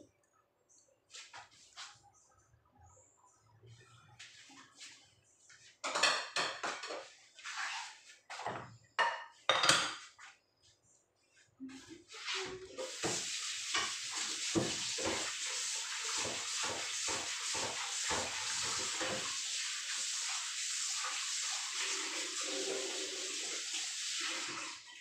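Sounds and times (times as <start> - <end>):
tap running into sink: 12.8 - 19.5.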